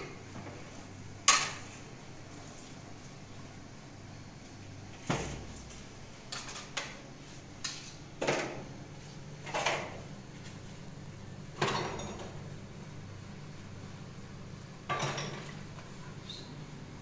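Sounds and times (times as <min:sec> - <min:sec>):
steady low hum: 0:00.0 - 0:17.0
dishes and utensils clattering: 0:11.6 - 0:12.4, 0:14.9 - 0:15.8.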